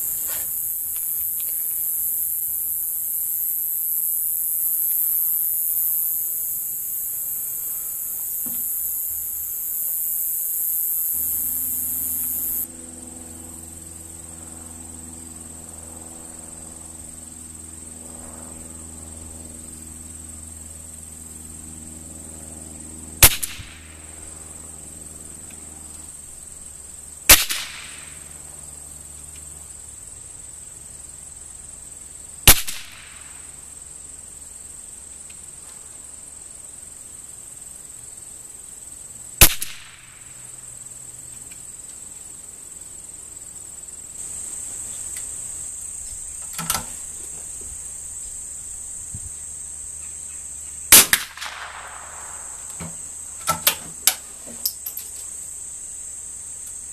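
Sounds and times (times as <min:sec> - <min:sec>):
insects chirring: 0:00.0 - 0:56.9
rifle shots cracking: 0:23.2 - 0:23.8, 0:32.5 - 0:33.2, 0:39.4 - 0:40.0, 0:50.9 - 0:52.7.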